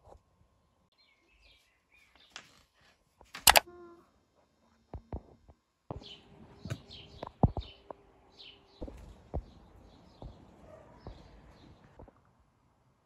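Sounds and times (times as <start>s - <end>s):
small birds chirping: 0.9s - 2.9s, 5.9s - 12.1s
sharp clicks or knocks: 3.4s - 3.6s.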